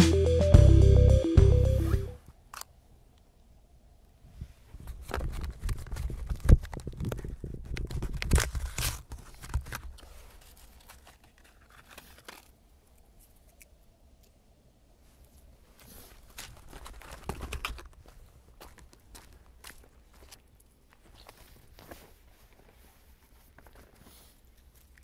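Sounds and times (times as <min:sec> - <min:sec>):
packaging crinkling and tearing: 0:05.1 - 0:13.6, 0:16.0 - 0:18.2.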